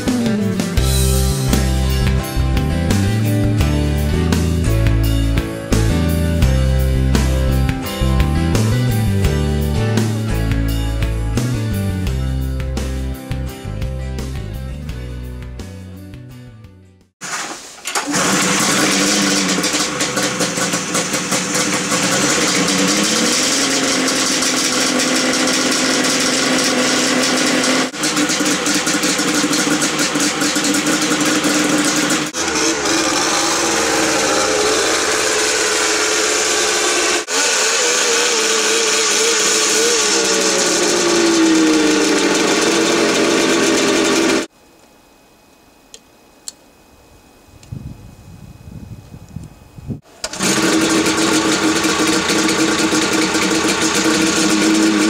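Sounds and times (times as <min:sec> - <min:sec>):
snowmobile engine running: 0:18.0 - 0:44.5, 0:50.2 - 0:55.0.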